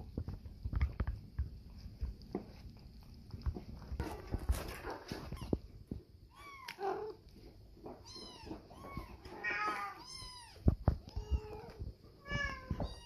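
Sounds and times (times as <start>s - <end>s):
cat meowing: 8.0s - 13.0s.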